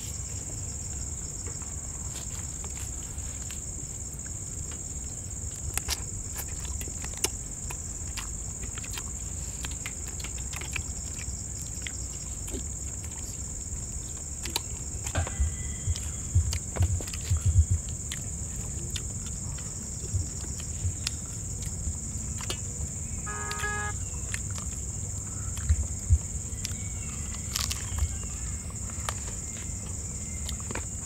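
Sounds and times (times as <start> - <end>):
insect chorus buzzing: 19.4 - 31.0.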